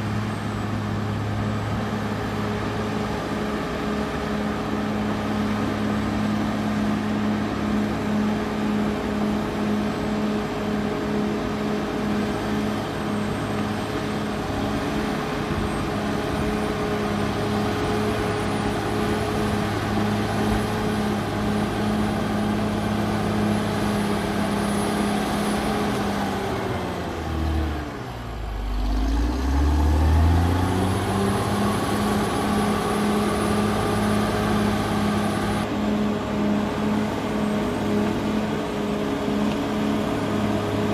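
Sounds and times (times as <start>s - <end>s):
bulldozer diesel engine: 0.0s - 40.9s.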